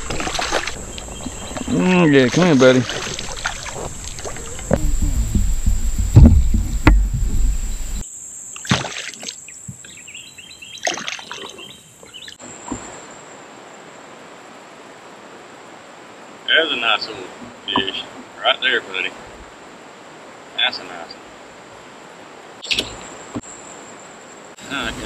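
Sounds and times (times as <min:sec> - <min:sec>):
fish splashing at surface: 0:00.0 - 0:00.8
small splashes: 0:00.0 - 0:08.0, 0:08.6 - 0:09.5, 0:10.8 - 0:11.6
faint steady hiss: 0:00.5 - 0:08.6, 0:11.8 - 0:25.0
heavy low rumbling: 0:03.8 - 0:08.0
sharp knocks: 0:04.7 - 0:08.0.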